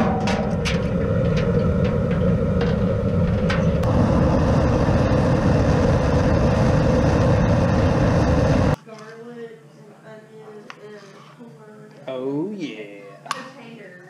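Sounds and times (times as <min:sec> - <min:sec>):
gas burner rumbling and hissing: 0:00.0 - 0:08.8.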